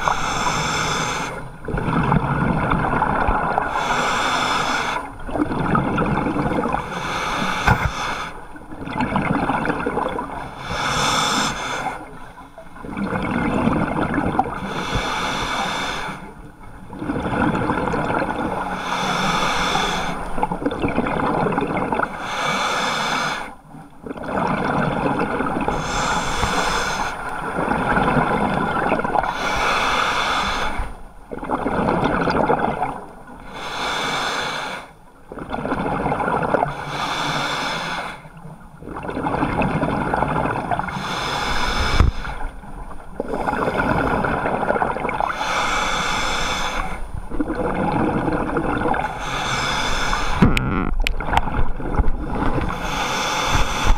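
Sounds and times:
diver breathing through regulator: 0:00.0 - 0:01.5, 0:03.6 - 0:05.2, 0:06.7 - 0:08.5, 0:10.5 - 0:12.1, 0:14.6 - 0:16.4, 0:18.6 - 0:20.4, 0:22.1 - 0:23.6, 0:25.5 - 0:31.0, 0:33.4 - 0:35.0, 0:36.7 - 0:38.3, 0:40.9 - 0:42.5, 0:45.2 - 0:47.1, 0:49.0 - 0:50.9, 0:52.2 - 0:53.9
bubbling underwater: 0:01.6 - 0:03.8, 0:05.2 - 0:06.8, 0:08.7 - 0:10.4, 0:12.8 - 0:14.6, 0:16.9 - 0:18.6, 0:20.4 - 0:22.1, 0:31.3 - 0:33.1, 0:43.1 - 0:45.3, 0:47.2 - 0:49.2, 0:50.4 - 0:52.8.

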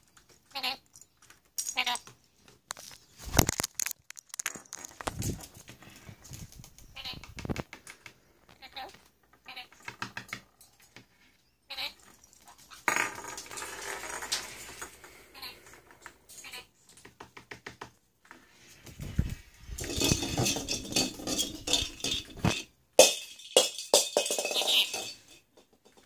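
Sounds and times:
plastic balls rattling on floor: 0:00.0 - 0:11.1, 0:11.8 - 0:26.0
balls rolling and rumbling: 0:12.0 - 0:16.3, 0:17.2 - 0:26.0.

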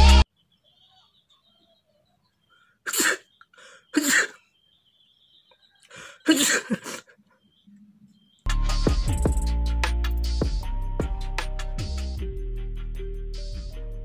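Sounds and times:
man sneezing: 0:02.9 - 0:04.4, 0:06.0 - 0:07.1.

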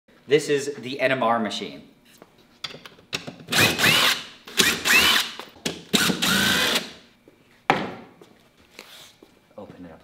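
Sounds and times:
cordless drill motor winding: 0:03.5 - 0:05.4, 0:06.0 - 0:06.9.

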